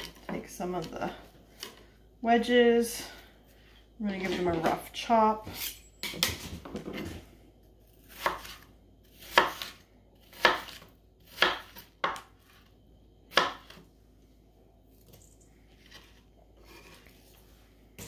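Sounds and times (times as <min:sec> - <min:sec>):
knife chopping on cutting board: 0:08.0 - 0:12.3, 0:13.3 - 0:13.8.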